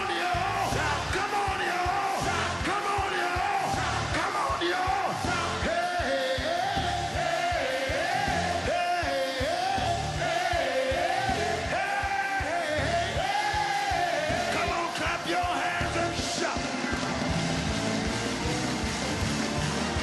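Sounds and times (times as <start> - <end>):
man singing into microphone: 0.0 - 17.0
drum beat: 0.0 - 20.0
bass: 0.4 - 1.2, 2.2 - 2.7, 3.7 - 4.2, 5.2 - 5.8, 6.6 - 7.3, 8.0 - 8.8, 9.6 - 10.3, 11.0 - 11.8, 12.8 - 13.4, 14.2 - 14.7, 15.8 - 20.0.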